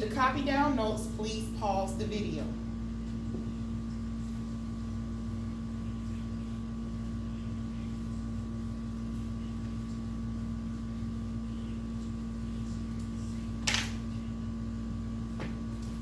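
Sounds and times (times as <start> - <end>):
mechanical room hum: 0.0 - 16.0.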